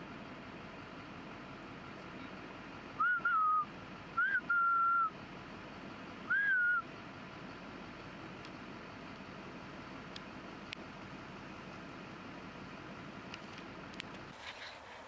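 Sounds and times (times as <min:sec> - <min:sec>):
person whistling: 0:03.0 - 0:05.1, 0:06.3 - 0:06.8.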